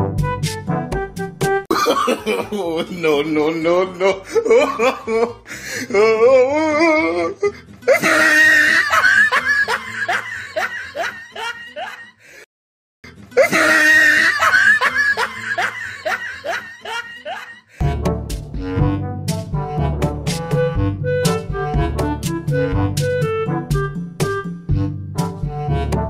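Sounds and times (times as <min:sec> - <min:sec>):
brass music: 0:00.0 - 0:01.6, 0:17.8 - 0:26.0
comic snickering laughs: 0:01.7 - 0:02.8, 0:07.9 - 0:12.1, 0:13.4 - 0:17.7.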